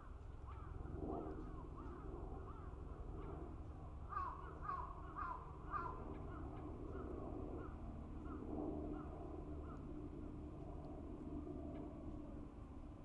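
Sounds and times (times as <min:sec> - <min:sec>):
crow cawing: 0:04.1 - 0:05.9.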